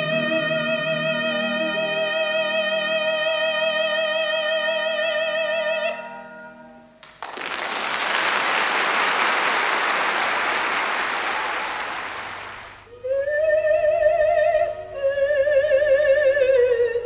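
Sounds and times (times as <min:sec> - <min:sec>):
soprano singing: 0:00.0 - 0:06.0, 0:12.8 - 0:17.0
audience applause: 0:07.0 - 0:12.8.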